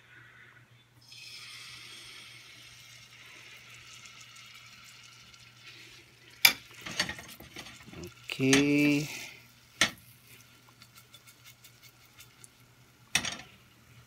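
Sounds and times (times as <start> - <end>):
batter sizzling in hot oil: 1.0 - 14.0
kitchen utensils knocking: 13.2 - 13.5.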